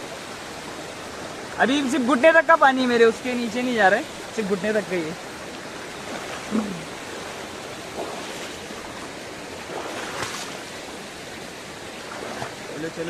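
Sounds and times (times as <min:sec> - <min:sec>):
river rushing over rocks: 0:00.0 - 0:13.0
water splashes from wading: 0:04.0 - 0:13.0
short vocal sound: 0:06.5 - 0:06.9.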